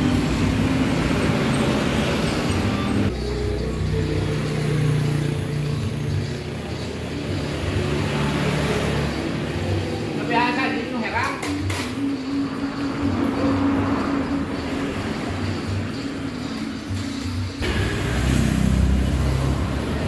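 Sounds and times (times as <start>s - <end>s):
road traffic noise: 0.0s - 20.0s.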